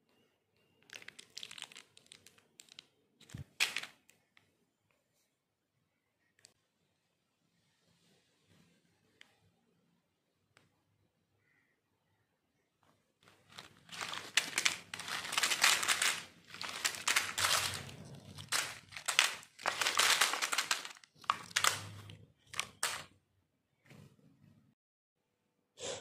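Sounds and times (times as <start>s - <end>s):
candy wrappers crinkling: 0.8s - 4.1s, 13.2s - 23.1s.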